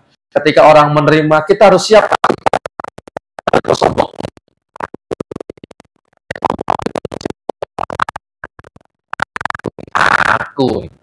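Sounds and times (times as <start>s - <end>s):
choppy man's voice fragments: 0.3s - 5.7s, 9.2s - 11.0s.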